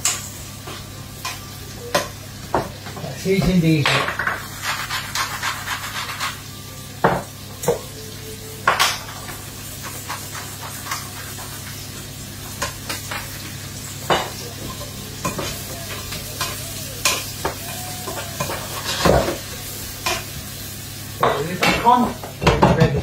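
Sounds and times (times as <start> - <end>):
onions sizzling in a frying pan: 0.0 - 23.0
spoon scraping a pan: 4.1 - 6.5.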